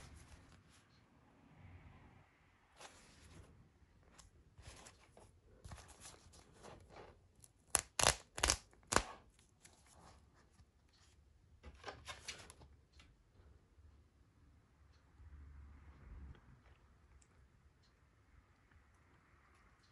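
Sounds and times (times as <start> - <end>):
cracker snapping: 7.7 - 9.2.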